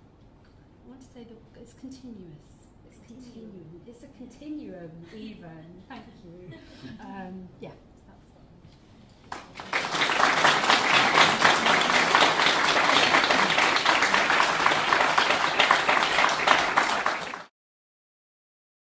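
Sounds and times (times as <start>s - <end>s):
audience applauding: 9.3s - 17.5s.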